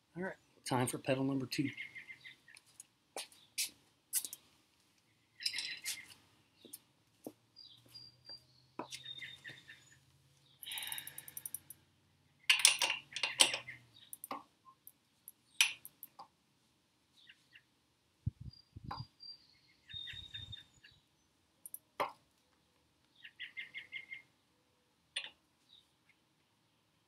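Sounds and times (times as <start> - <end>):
clinks of wrench and bike parts: 5.4 - 5.9, 10.6 - 11.8, 12.5 - 14.4, 15.6 - 16.2
faint bird chirps: 7.6 - 11.6, 18.3 - 21.8, 23.1 - 24.3.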